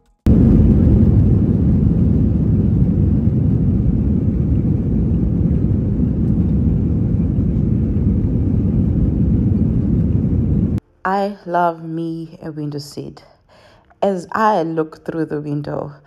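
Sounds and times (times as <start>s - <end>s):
jet engines rumbling in cabin: 0.3s - 10.8s.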